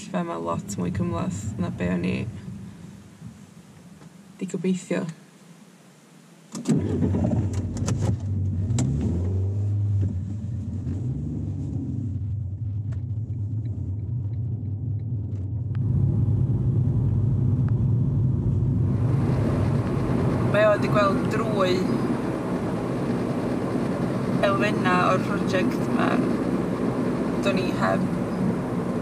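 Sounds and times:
road noise: 0:00.0 - 0:29.0
car engine starting: 0:06.5 - 0:29.0
car engine running: 0:06.7 - 0:29.0.

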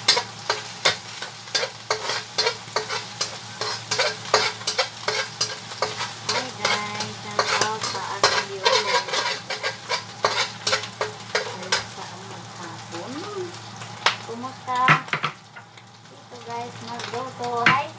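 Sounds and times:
utensil scraping and knocking pan: 0:00.0 - 0:11.9
food sizzling in a frying pan: 0:00.0 - 0:17.9.

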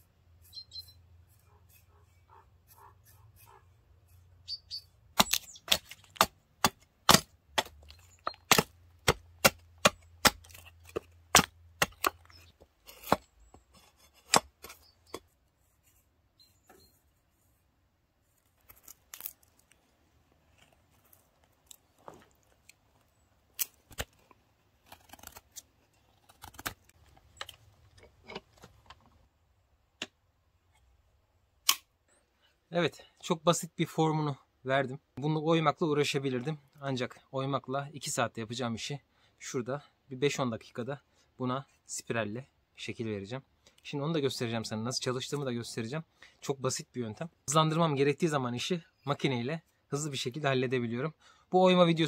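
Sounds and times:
chopping strikes on wood: 0:05.2 - 0:07.9, 0:08.5 - 0:12.2.

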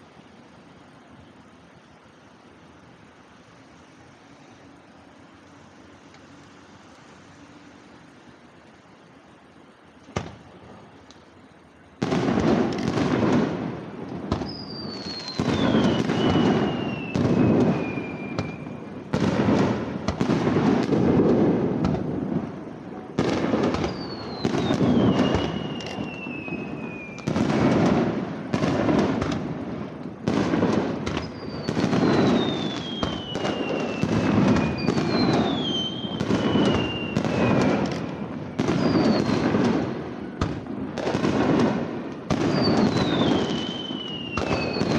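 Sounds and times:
fireworks booming and crackling: 0:10.0 - 0:44.9
firework whistles falling in pitch: 0:14.2 - 0:21.0, 0:23.2 - 0:29.4, 0:30.3 - 0:41.4, 0:42.3 - 0:44.9.

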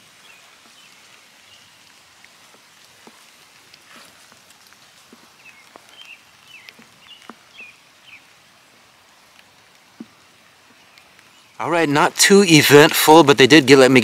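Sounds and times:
background hiss: 0:00.0 - 0:14.0
light ticks: 0:01.8 - 0:07.5, 0:09.3 - 0:11.3.

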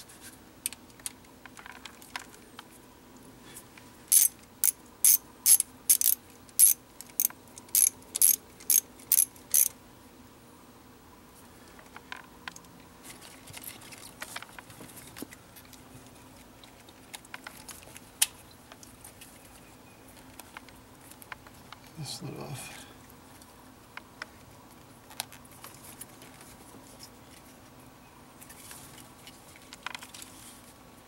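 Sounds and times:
socket ratchet clicking: 0:04.1 - 0:09.7.

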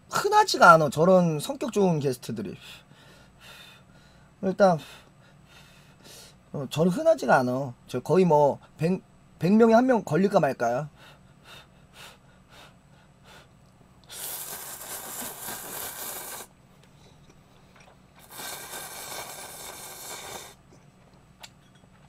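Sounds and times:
man slurping noodles: 0:14.1 - 0:16.5, 0:18.2 - 0:20.6.

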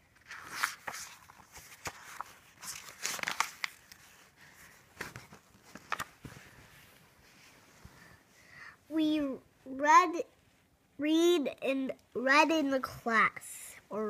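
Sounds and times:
book pages turning: 0:00.1 - 0:08.1.

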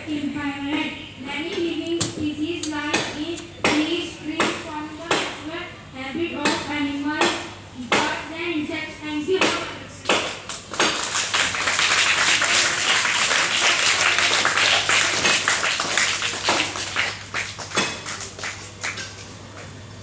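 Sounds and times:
crowd clapping: 0:10.5 - 0:19.8.

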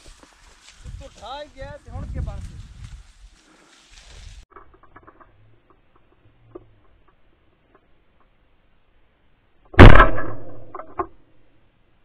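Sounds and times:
shotgun shot with echo: 0:09.8 - 0:10.7.

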